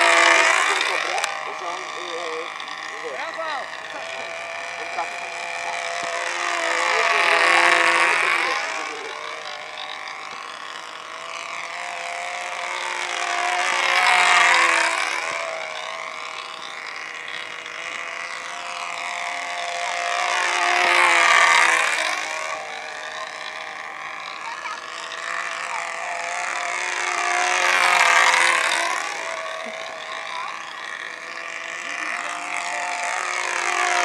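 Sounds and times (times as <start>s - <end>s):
model plane engine buzzing: 0.0s - 34.0s.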